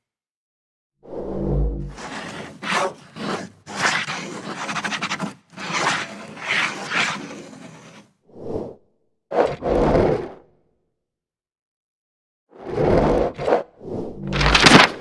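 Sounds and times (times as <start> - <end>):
scratchy swishing scribble strokes: 1.9 - 8.1.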